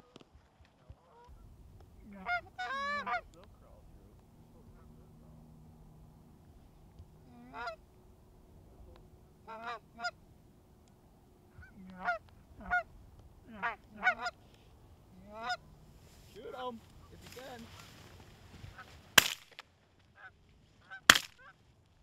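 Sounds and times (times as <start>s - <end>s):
geese honking: 1.1s - 19.2s, 20.1s - 21.6s.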